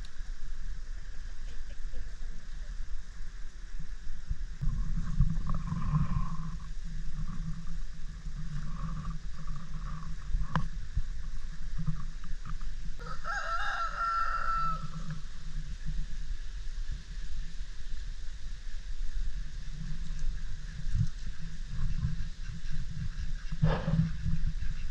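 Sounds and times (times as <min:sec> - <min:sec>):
rooster crowing: 0:13.0 - 0:15.2
steady low rumble: 0:14.2 - 0:24.9.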